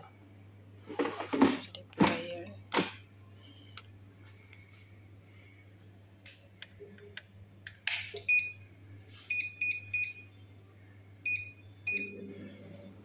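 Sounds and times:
low steady hum: 0.0 - 13.0
electric fryer beeping: 8.1 - 12.8.

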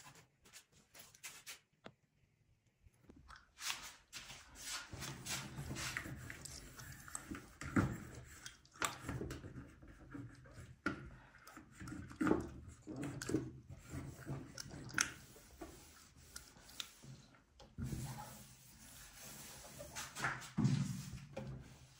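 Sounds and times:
cloth wiping stovetop: 15.1 - 21.9.

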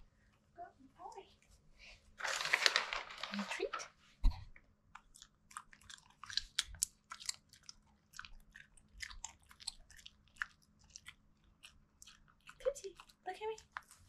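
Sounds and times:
dog chewing a treat: 5.0 - 14.0.

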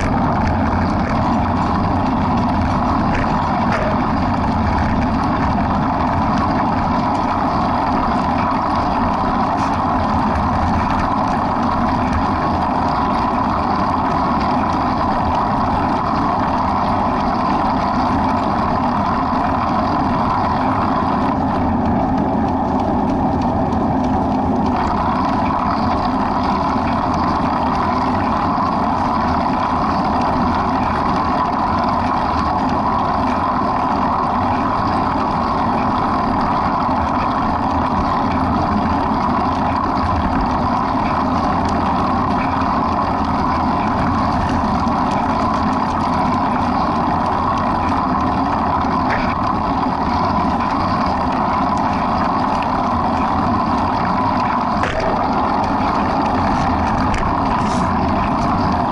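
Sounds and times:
motor vehicle droning: 0.0 - 35.4, 36.0 - 58.9.

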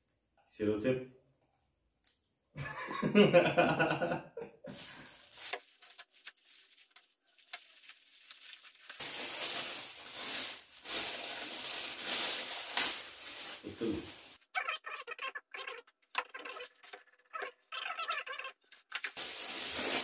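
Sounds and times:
wrapping paper crinkling and tearing: 4.7 - 15.2, 16.3 - 20.0
person's voice: 13.6 - 16.7.

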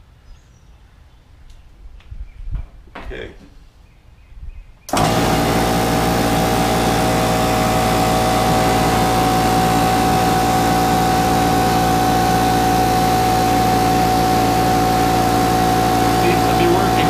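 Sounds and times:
air compressor running: 4.9 - 17.0
compressor whine: 4.9 - 17.0.

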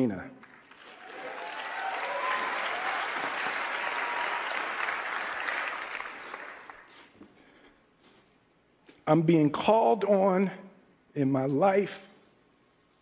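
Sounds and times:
large audience applauding: 0.4 - 7.0.

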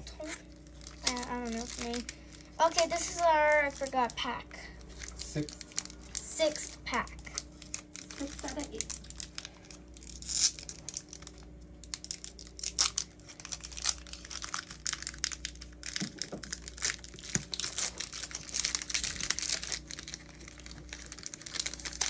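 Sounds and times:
foil wrapper crinkling and tearing: 0.2 - 22.0.

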